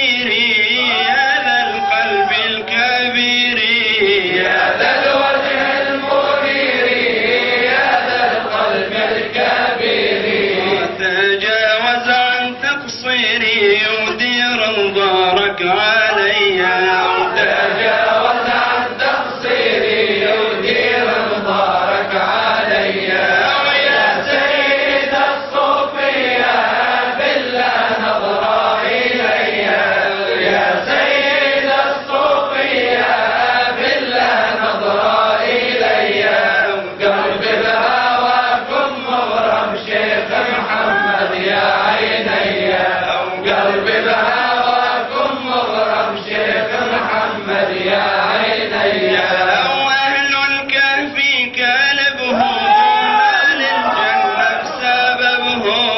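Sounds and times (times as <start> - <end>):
man chanting unaccompanied: 0.0 - 5.3, 10.4 - 19.7, 20.3 - 25.3, 38.7 - 42.4, 48.8 - 55.9.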